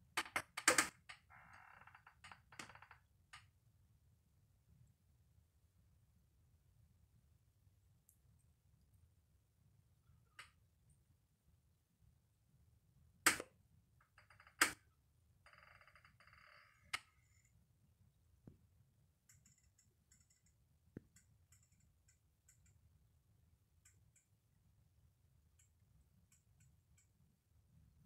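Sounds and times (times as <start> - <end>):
sharp clicks: 13.3 - 13.5
faint ticks: 19.3 - 22.9.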